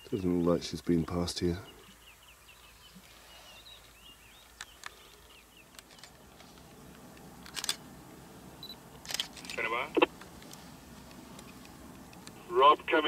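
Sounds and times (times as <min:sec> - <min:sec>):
faint birds chirping: 0:00.0 - 0:13.0
sharp clicks: 0:09.0 - 0:12.4.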